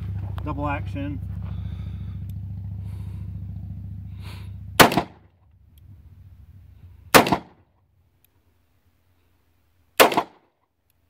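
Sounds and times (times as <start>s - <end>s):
steady low hum: 0.0s - 11.0s
revolver shots: 4.8s - 5.3s, 7.1s - 7.6s, 10.0s - 10.4s.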